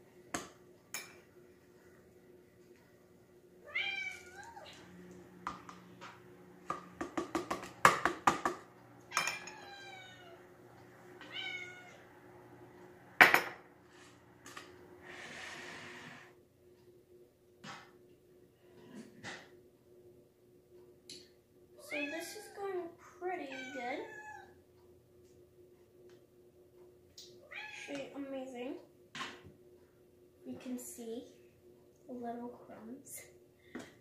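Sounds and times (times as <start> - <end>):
cat meowing: 3.6 - 4.8, 9.1 - 10.4, 11.2 - 12.0, 23.5 - 24.5.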